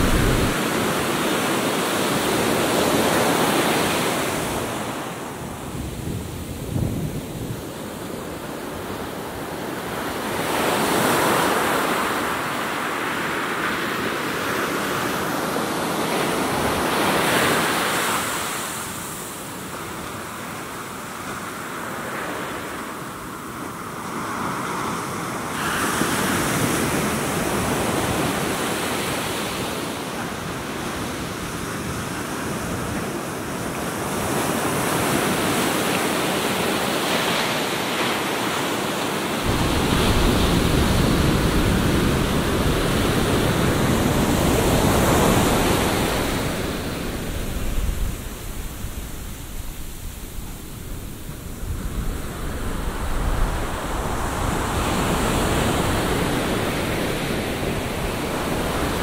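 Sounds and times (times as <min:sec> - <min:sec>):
wind on the microphone: 0:00.0 - 0:01.3, 0:39.4 - 0:59.0
surf breaking on a sandy beach: 0:00.0 - 0:59.0.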